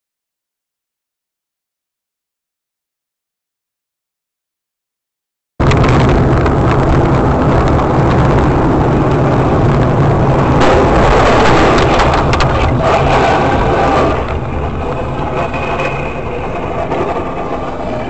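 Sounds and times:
road noise: 5.6 - 18.0
vehicle engine running: 5.6 - 18.0.

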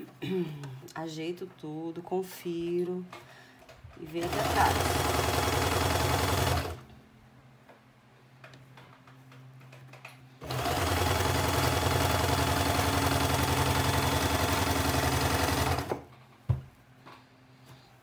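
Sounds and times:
sewing machine stitching: 4.1 - 6.8, 10.4 - 16.1.

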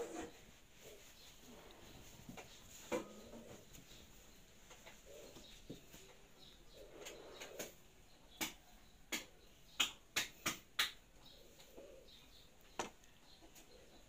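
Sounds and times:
hands slapping face: 8.4 - 11.0.

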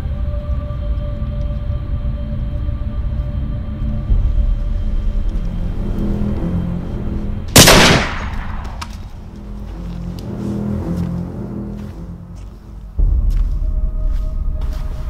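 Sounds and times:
low dark music score: 0.0 - 15.0
rifle shot: 7.5 - 9.1.

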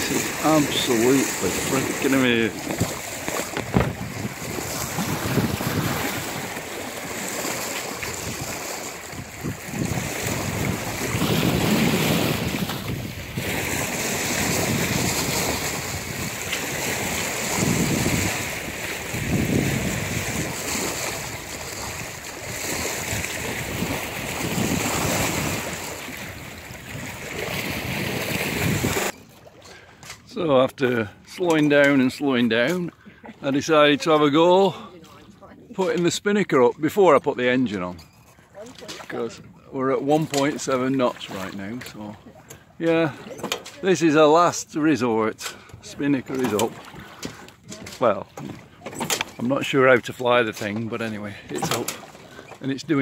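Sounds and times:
wind buffeting microphone: 0.0 - 6.6, 8.0 - 29.1
water splashing along hull: 0.0 - 53.0.

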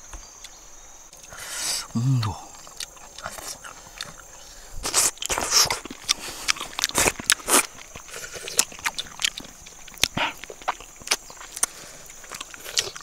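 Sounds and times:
man biting and chewing fish skin: 1.2 - 13.0
mouth clicks: 1.2 - 13.0.

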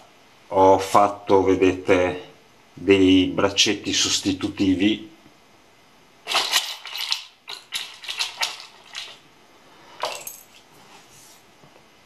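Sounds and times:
plastic parts clattering in tub: 6.3 - 9.2.

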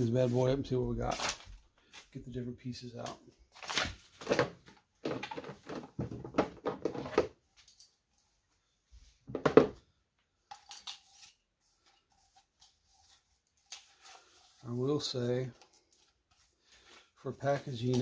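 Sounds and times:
plastic parts rustling and clattering: 3.0 - 8.3, 10.4 - 18.0
faint handling noises: 10.2 - 18.0.

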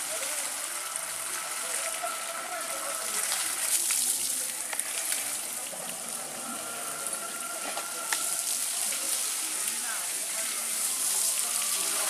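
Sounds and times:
hose spraying water: 0.0 - 12.0.

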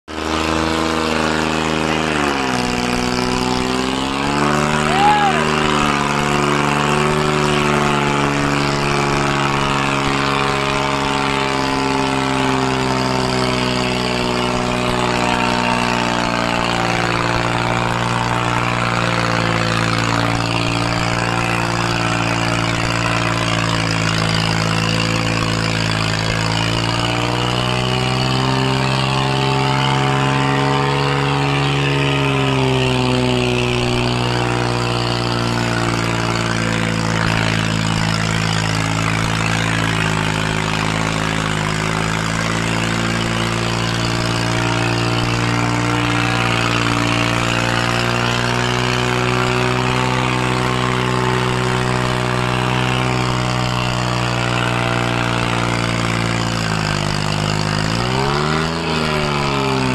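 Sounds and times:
tractor diesel engine droning: 0.0 - 59.9.

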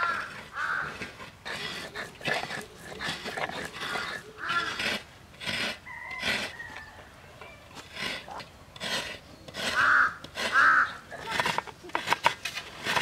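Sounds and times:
crow cawing: 0.0 - 1.0, 9.8 - 11.0
coconut scraped on a grater: 0.0 - 6.8, 7.8 - 13.0
stone roller grinding on slab: 0.0 - 6.9, 7.7 - 13.0.

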